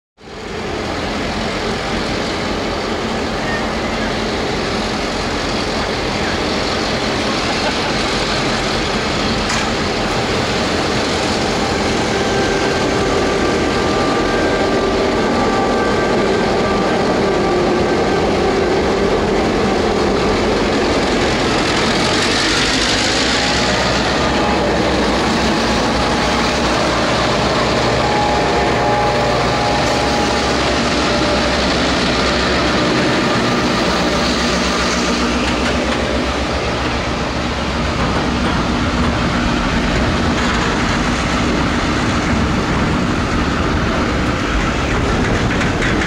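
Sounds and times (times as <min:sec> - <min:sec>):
diesel locomotive engine drone: 0:00.2 - 0:46.0.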